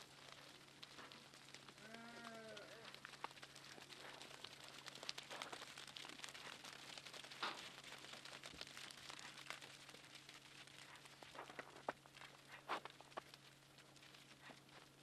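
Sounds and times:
low steady hum: 0:00.0 - 0:15.0
hooves crunching on snow: 0:00.3 - 0:13.4.

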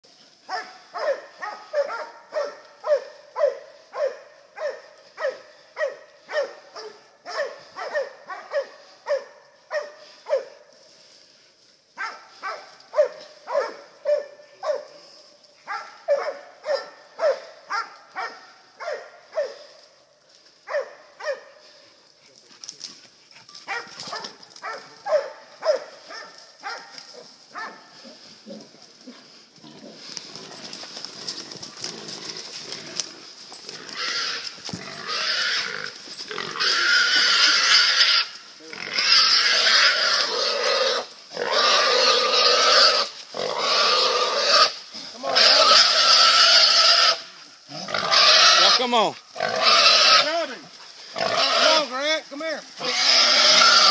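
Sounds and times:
dog barking: 0:00.5 - 0:10.6, 0:12.0 - 0:15.0, 0:15.6 - 0:19.7, 0:20.6 - 0:21.6, 0:23.6 - 0:28.2.

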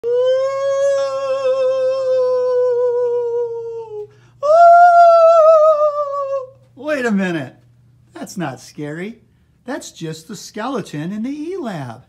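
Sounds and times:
person moaning spookily: 0:00.0 - 0:06.5.

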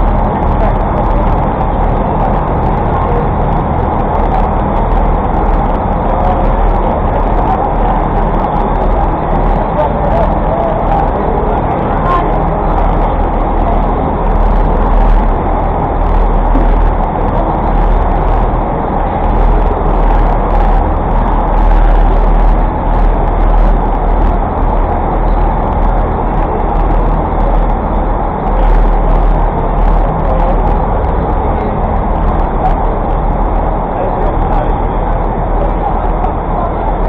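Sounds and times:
city traffic rumble: 0:00.0 - 0:37.0.

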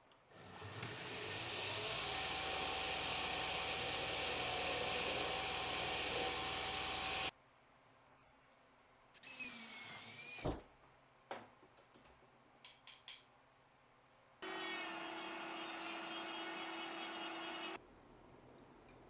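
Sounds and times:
belt grinder grinding steel: 0:00.4 - 0:07.3
cordless drill whining: 0:00.4 - 0:07.3.

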